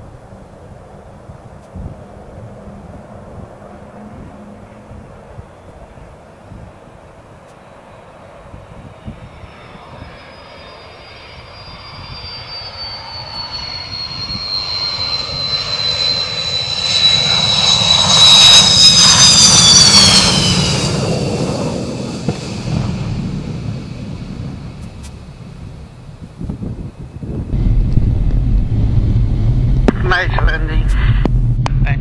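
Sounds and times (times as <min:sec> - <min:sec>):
jet engine whine and rumble: 0:00.0 - 0:32.0.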